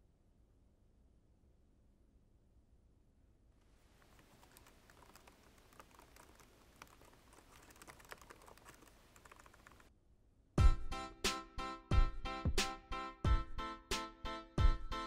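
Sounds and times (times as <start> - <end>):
typing on laptop keyboard: 4.0 - 9.9.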